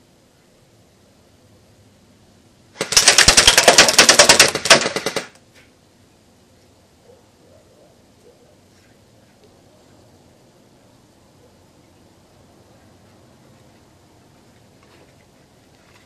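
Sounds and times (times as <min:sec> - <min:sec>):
airsoft gun full-auto burst: 0:02.8 - 0:05.4.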